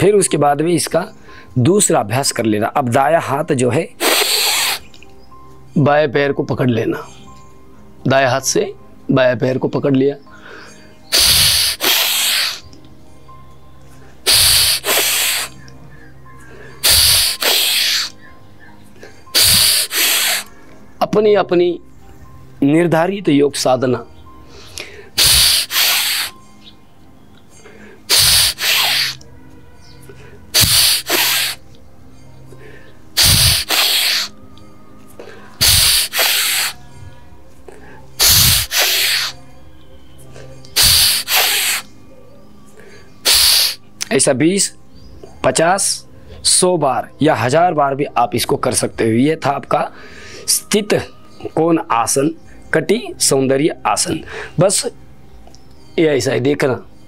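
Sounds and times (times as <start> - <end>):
person breathing forcefully: 4.0 - 4.9, 10.3 - 12.7, 14.3 - 15.6, 16.4 - 18.1, 19.0 - 20.6, 24.5 - 26.4, 27.6 - 29.2, 30.1 - 31.6, 32.5 - 34.3, 35.2 - 39.4, 40.8 - 41.9, 42.8 - 43.8.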